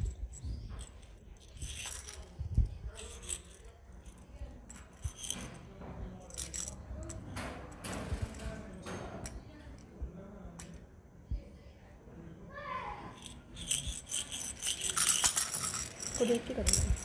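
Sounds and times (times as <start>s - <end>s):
plastic jingle-ball toys rattling: 0.0s - 9.4s, 13.1s - 17.0s.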